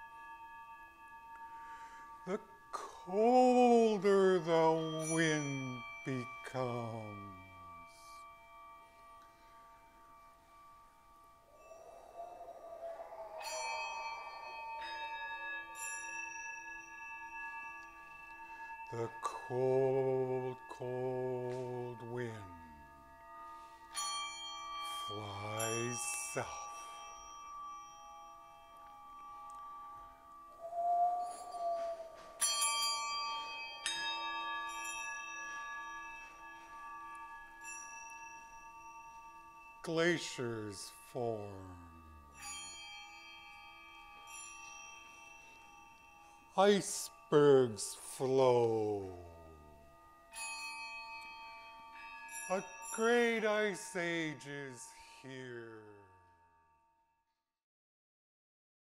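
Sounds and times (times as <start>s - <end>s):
ambient metal percussion music: 0.0s - 40.4s
singing bowls struck: 3.6s - 40.0s.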